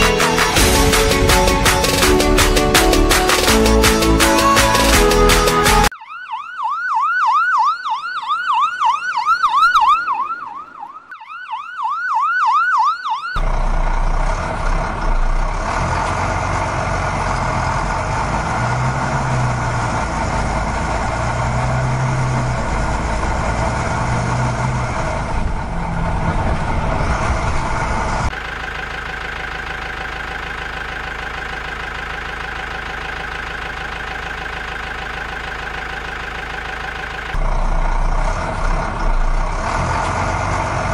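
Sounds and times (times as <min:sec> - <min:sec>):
heavy vehicle engine running: 0:00.0 - 0:05.9, 0:13.4 - 0:40.9
ambulance siren: 0:00.0 - 0:13.5.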